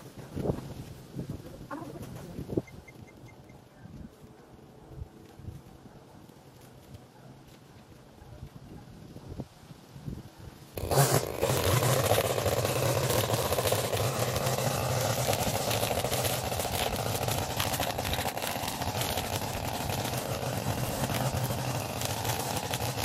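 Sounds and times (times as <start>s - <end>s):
small gasoline engine running: 10.8s - 23.0s.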